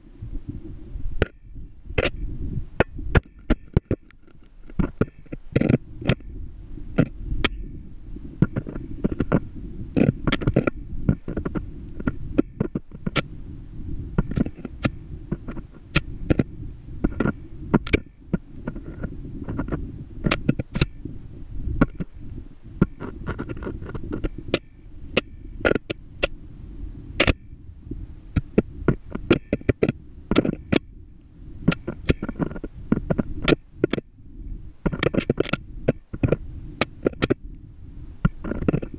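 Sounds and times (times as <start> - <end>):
muffled low rumble: 0.0 - 38.9
camera scraping and bumping on rock: 0.5 - 26.4, 27.1 - 37.6, 38.2 - 38.9.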